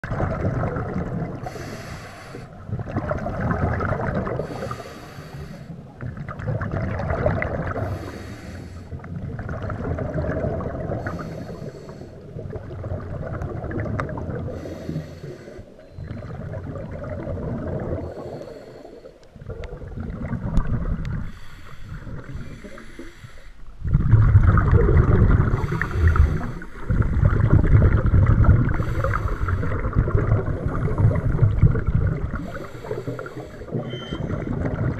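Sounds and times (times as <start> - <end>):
bubbling exhaled air: 0.0 - 34.9
regulator inhale hiss: 1.4 - 2.6, 4.4 - 5.8, 7.8 - 9.0, 11.0 - 12.2, 14.5 - 15.8, 18.0 - 19.3, 21.2 - 23.7, 25.6 - 27.0, 28.7 - 29.9, 32.3 - 33.8.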